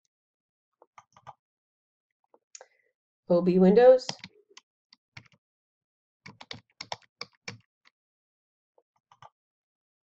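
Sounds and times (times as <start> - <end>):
computer keyboard typing: 4.1 - 4.3, 5.2 - 5.4, 6.3 - 7.7.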